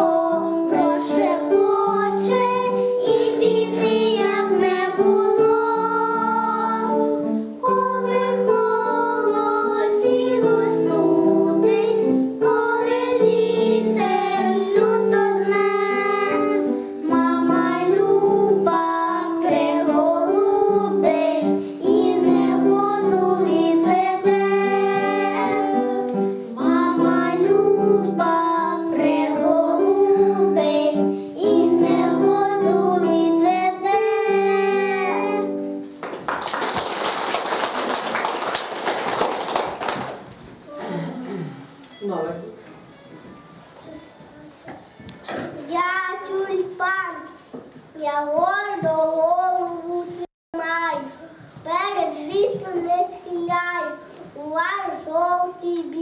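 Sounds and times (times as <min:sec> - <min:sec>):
girls singing: 0:00.0 - 0:35.7
applause: 0:36.0 - 0:40.3.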